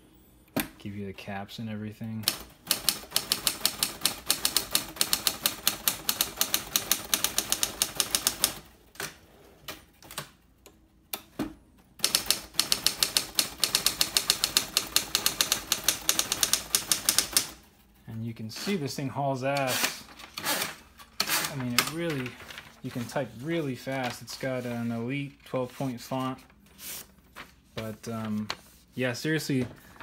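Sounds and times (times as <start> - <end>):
manual typewriter keystroke clacks: 2.2 - 9.1, 12.0 - 17.6.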